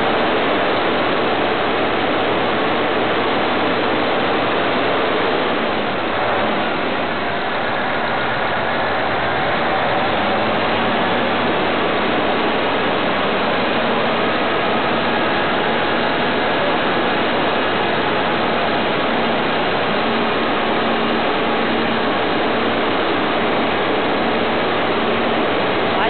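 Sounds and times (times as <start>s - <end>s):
diesel engine running: 0.0s - 26.0s
faint steady hum: 0.0s - 26.0s.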